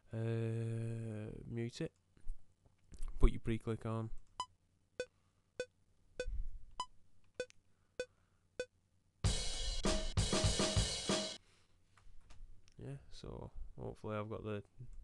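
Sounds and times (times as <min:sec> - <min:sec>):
drum kit beat: 0:09.2 - 0:11.4.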